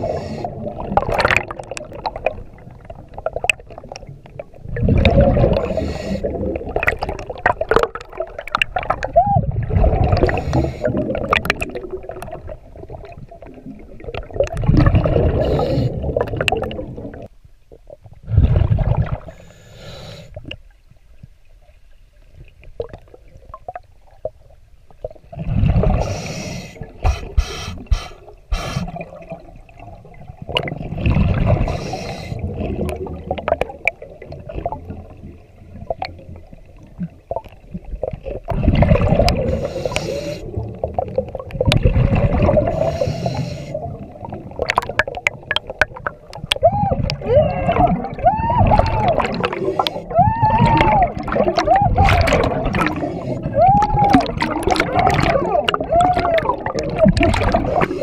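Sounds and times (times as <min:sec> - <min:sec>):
diver breathing through regulator: 0:00.0 - 0:00.6, 0:05.5 - 0:06.5, 0:10.2 - 0:11.2, 0:15.2 - 0:16.2, 0:19.2 - 0:20.4, 0:25.8 - 0:29.0, 0:31.6 - 0:32.5, 0:39.2 - 0:40.6, 0:42.6 - 0:44.0, 0:49.4 - 0:50.1, 0:52.7 - 0:53.5, 0:57.5 - 0:58.0
exhaled bubbles underwater: 0:00.0 - 0:19.5, 0:22.3 - 0:58.0.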